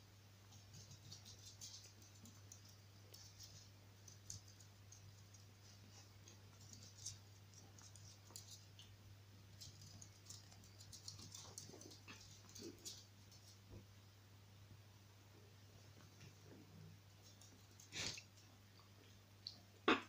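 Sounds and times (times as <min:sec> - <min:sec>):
puppy claws on floor: 0:00.5 - 0:08.9, 0:09.5 - 0:13.6.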